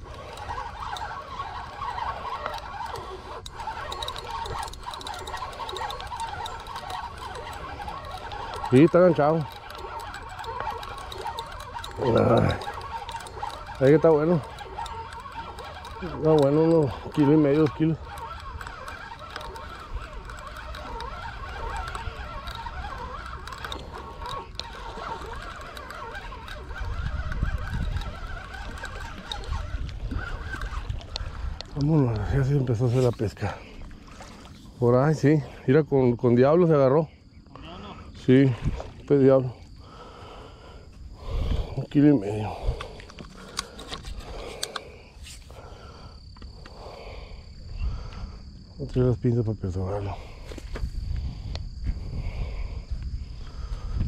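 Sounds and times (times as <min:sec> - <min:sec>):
birds chirping and calling: 0:00.0 - 0:35.6
fishing reel ticking and whirring: 0:00.0 - 0:54.0
wind rumble on microphone: 0:16.8 - 0:35.1, 0:41.0 - 0:44.8, 0:47.3 - 0:54.0.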